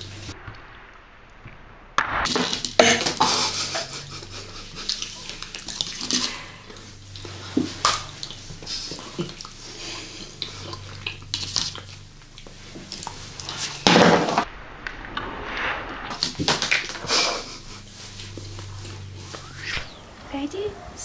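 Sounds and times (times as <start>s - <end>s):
person chewing chocolate: 3.9s - 13.8s.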